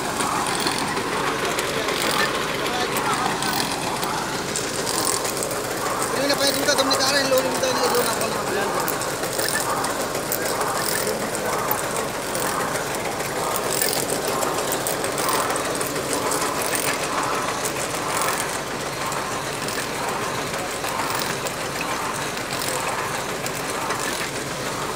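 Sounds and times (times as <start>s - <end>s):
heavy machine engine running: 0.0s - 24.9s.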